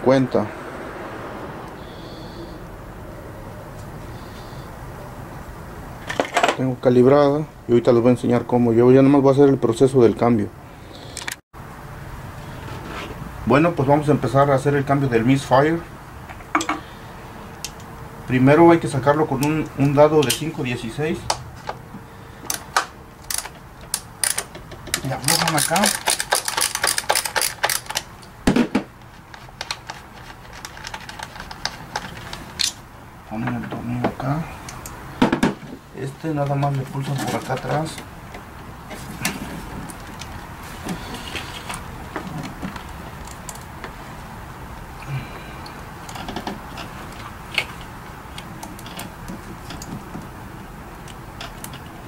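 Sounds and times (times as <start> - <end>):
ratchet clicking rapidly: 23.2 - 28.0.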